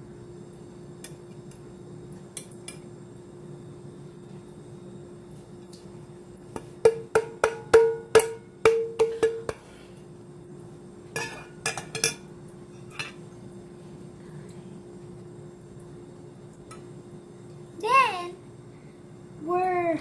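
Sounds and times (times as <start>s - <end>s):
metal bowl knocking on glass bowl: 6.6s - 9.6s.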